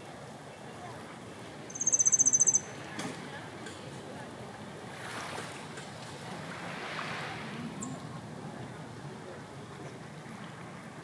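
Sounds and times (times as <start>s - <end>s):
sea surf washing in: 6.3s - 7.8s.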